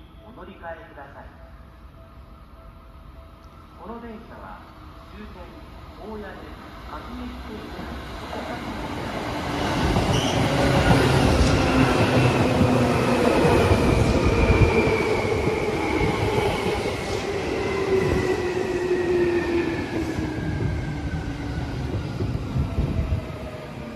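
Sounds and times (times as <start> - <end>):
rail and wheel noise: 0.0 - 23.9
electric train slowing to a stop: 7.8 - 23.9.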